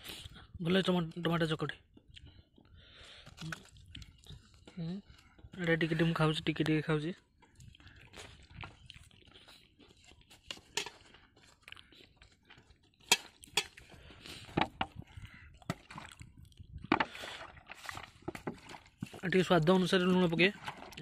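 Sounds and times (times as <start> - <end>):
wet squelching of crushed vegetables: 7.2 - 21.0.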